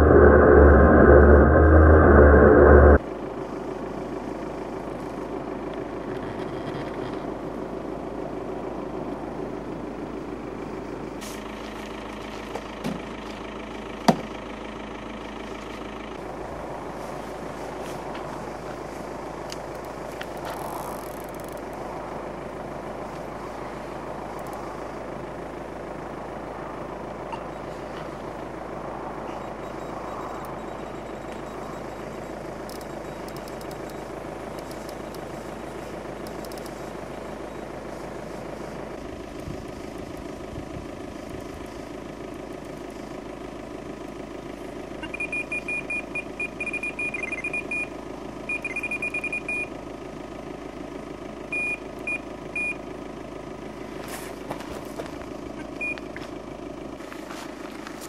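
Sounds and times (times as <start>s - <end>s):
steady low hum: 0.0s - 11.2s.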